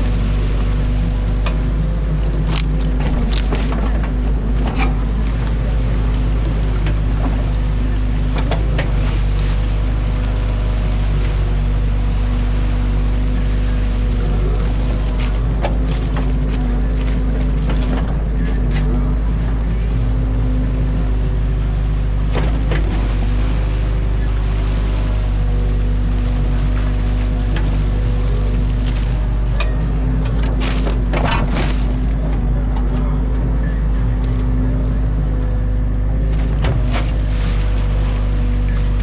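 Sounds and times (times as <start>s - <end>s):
diesel engine running: 0.0s - 39.0s.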